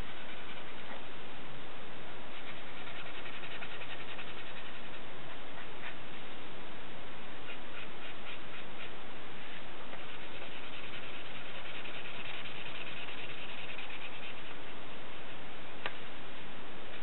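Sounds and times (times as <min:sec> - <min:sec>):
colored pencil scratching on paper: 0:00.0 - 0:01.0, 0:02.3 - 0:05.0, 0:07.5 - 0:08.9, 0:09.5 - 0:14.6.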